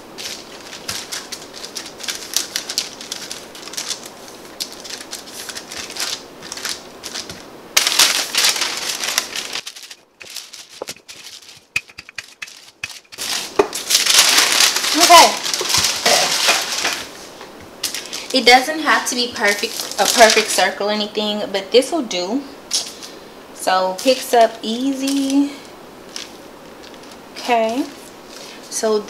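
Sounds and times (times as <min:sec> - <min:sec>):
parchment paper rustling: 0:00.0 - 0:21.0, 0:23.9 - 0:29.0.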